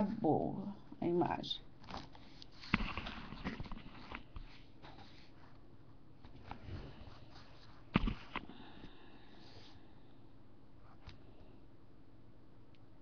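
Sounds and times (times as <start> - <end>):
soft rustles: 1.8 - 8.4.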